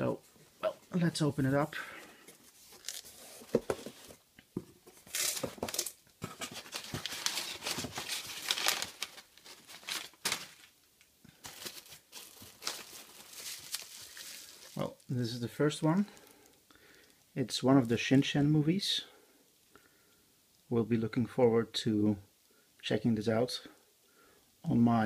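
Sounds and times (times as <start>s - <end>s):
packing paper rustling: 2.0s - 4.2s, 4.9s - 15.1s.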